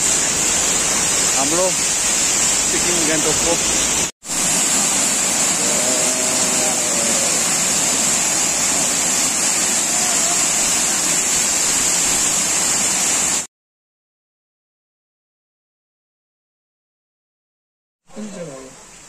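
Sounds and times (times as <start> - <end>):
waterfall rushing: 0.0 - 13.5.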